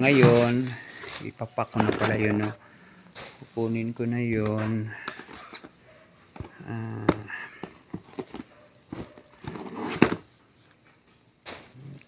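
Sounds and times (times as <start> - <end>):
cardboard boxes knocking and rustling: 6.3 - 10.3.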